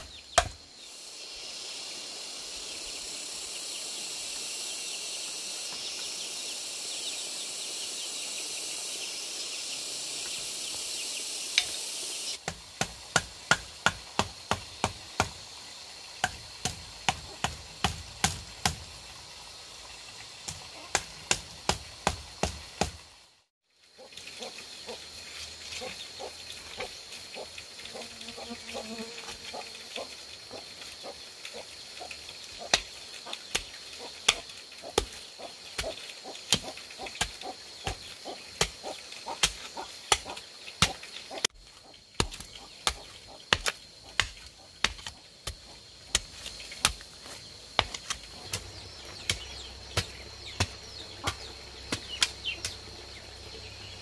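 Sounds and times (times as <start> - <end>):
tool striking bamboo: 0.0 - 0.6, 12.4 - 15.5, 16.2 - 19.0, 20.4 - 23.0, 32.7 - 47.1, 47.8 - 52.8
high insect drone: 0.0 - 23.0, 23.8 - 54.0.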